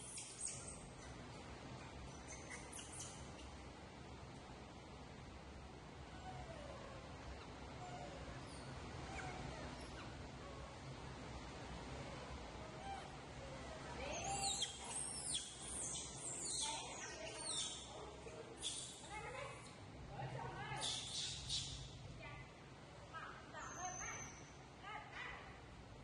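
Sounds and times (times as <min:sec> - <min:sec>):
baby monkeys squealing: 0:00.0 - 0:00.9, 0:02.2 - 0:03.2, 0:12.6 - 0:17.9, 0:18.6 - 0:19.0, 0:20.8 - 0:21.8.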